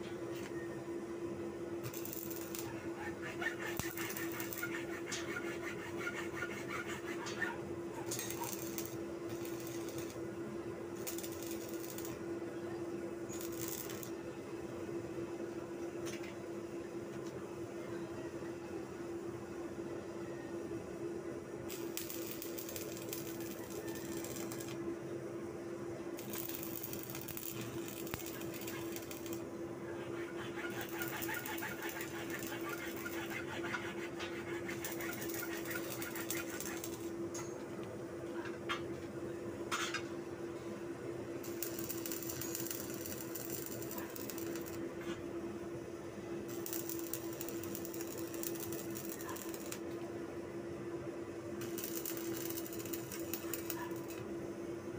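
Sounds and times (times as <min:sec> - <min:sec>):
steady hum: 0:00.0 - 0:54.9
arc welder crackling and sizzling: 0:01.8 - 0:12.4, 0:13.2 - 0:14.4, 0:21.7 - 0:25.0, 0:26.1 - 0:39.0, 0:41.2 - 0:45.3, 0:46.4 - 0:50.2, 0:51.6 - 0:54.4.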